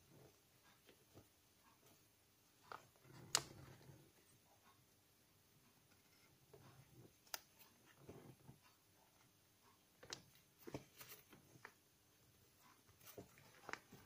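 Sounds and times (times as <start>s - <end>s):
paper crinkling while folded: 12.7s - 14.0s.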